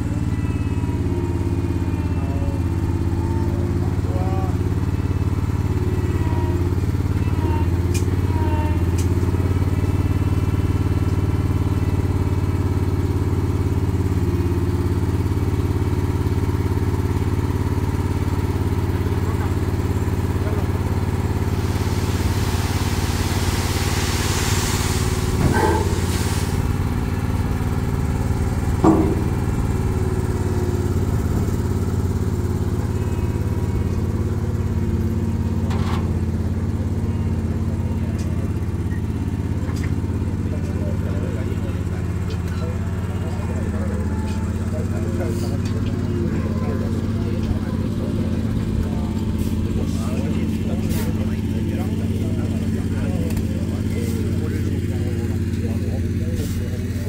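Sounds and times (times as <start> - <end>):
vehicle engine humming: 0.0 - 57.0
rushing hiss: 21.2 - 27.2.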